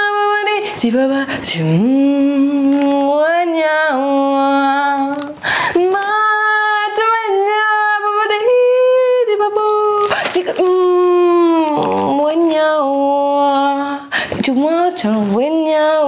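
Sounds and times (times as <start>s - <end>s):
woman singing without words: 0.0s - 16.0s
woman breathing in: 5.4s - 5.8s.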